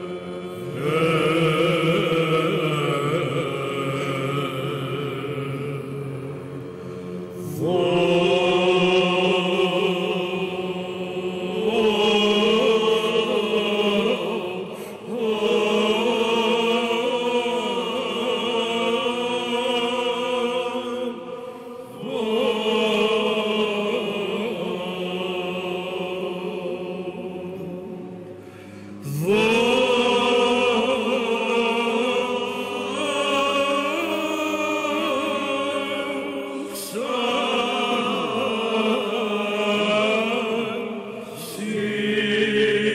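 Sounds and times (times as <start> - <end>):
choir chanting: 0.0 - 42.9.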